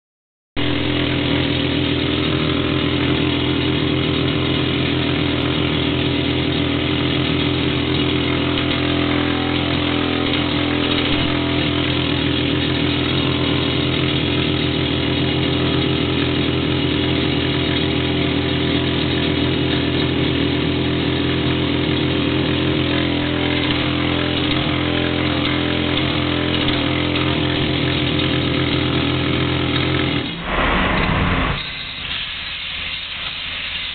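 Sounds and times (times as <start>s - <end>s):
rock drill drilling into rock: 7.4s - 14.6s, 22.6s - 30.4s.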